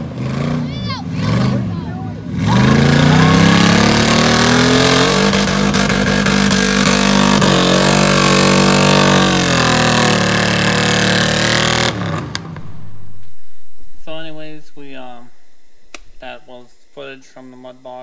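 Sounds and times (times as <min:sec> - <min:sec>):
truck engine revving hard: 0:00.0 - 0:13.0.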